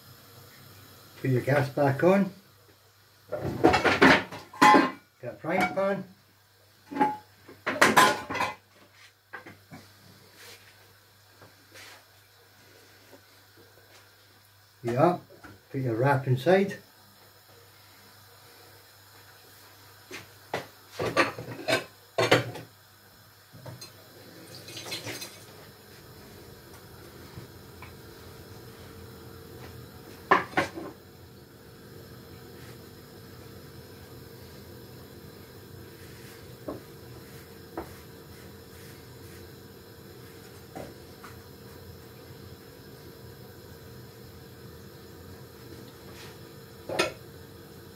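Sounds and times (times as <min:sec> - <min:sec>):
gas burner hissing: 0:00.0 - 0:47.9
kitchenware knocking and clinking: 0:03.7 - 0:05.0, 0:07.0 - 0:08.6.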